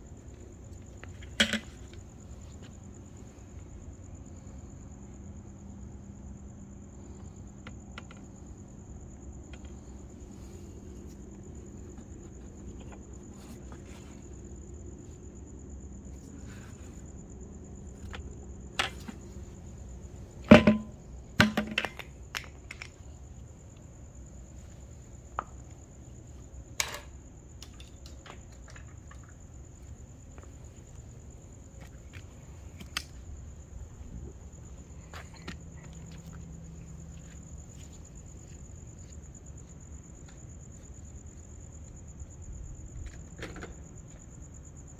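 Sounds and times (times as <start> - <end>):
crickets trilling: 0.0 - 44.9
plastic bucket knocking on concrete: 20.5 - 21.8.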